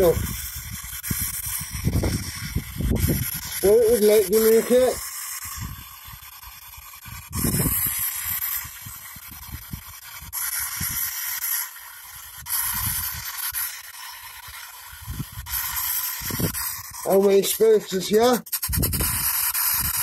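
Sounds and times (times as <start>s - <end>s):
radio static hiss: 0.0s - 0.4s, 3.4s - 5.2s, 15.6s - 18.6s
choppy low radio fragments: 0.0s - 5.8s, 15.0s - 19.2s.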